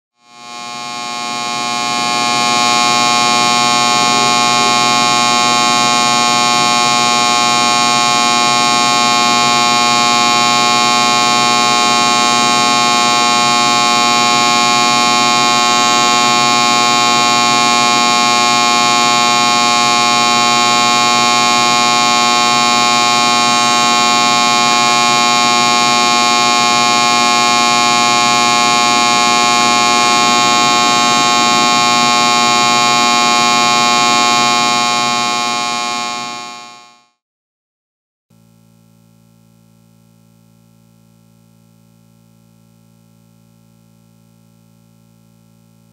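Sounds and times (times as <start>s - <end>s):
electric light buzzing: 0.3s - 36.8s.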